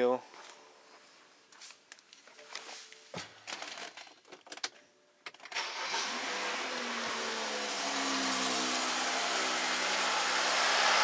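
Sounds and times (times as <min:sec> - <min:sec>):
car engine starting and idling: 0:05.5 - 0:11.0.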